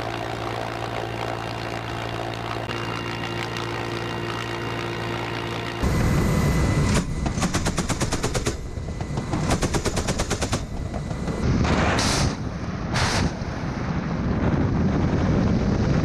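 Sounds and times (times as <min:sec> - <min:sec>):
helicopter rotor noise: 0:00.0 - 0:13.2
helicopter gun firing bursts: 0:06.8 - 0:13.4
wind noise: 0:10.6 - 0:16.0
rockets launching: 0:11.4 - 0:16.0.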